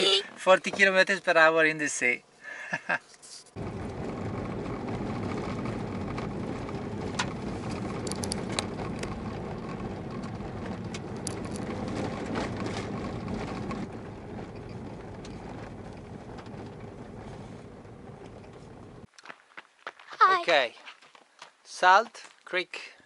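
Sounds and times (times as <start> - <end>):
tyre and engine noise: 3.5 - 19.1
gravel ticks on car: 3.6 - 19.4.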